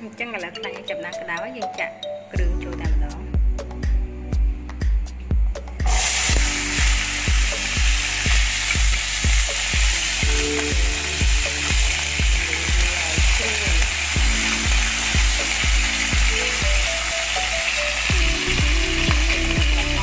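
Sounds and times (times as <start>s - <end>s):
background music with steady beat: 0.0s - 20.0s
food sizzling in hot oil: 5.8s - 20.0s.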